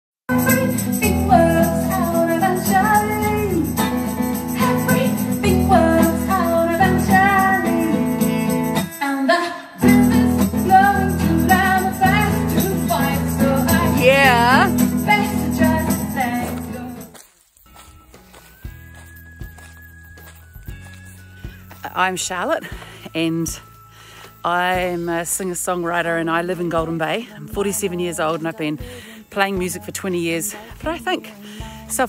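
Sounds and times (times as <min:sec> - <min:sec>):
woman singing: 0:00.3 - 0:03.9, 0:04.5 - 0:17.2, 0:24.4 - 0:32.0
acoustic guitar: 0:00.3 - 0:32.0.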